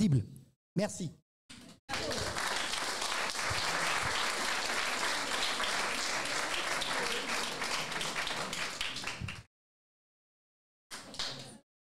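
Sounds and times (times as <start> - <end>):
audience applauding: 1.9 - 9.5.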